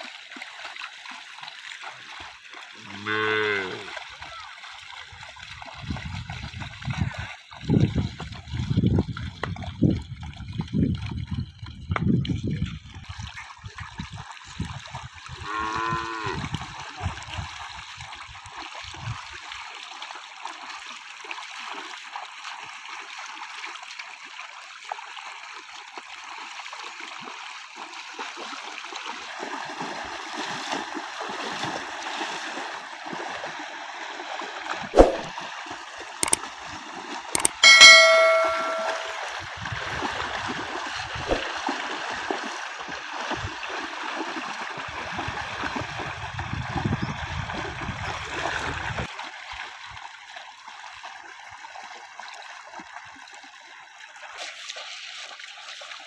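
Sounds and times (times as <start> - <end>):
flowing water rushing: 0.0 - 9.0, 29.4 - 39.3
cow mooing: 2.8 - 3.9, 15.4 - 16.4
sharp click: 37.4 - 39.2.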